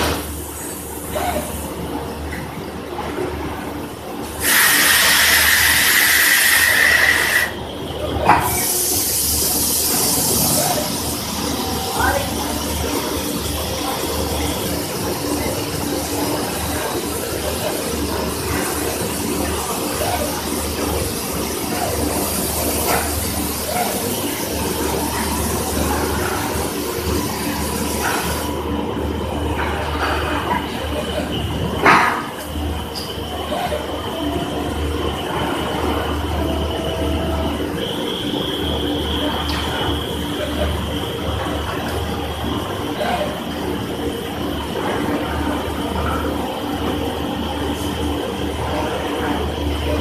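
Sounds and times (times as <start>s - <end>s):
low machinery hum: 0.0s - 50.0s
spray nozzle hissing and whistling: 4.4s - 7.6s.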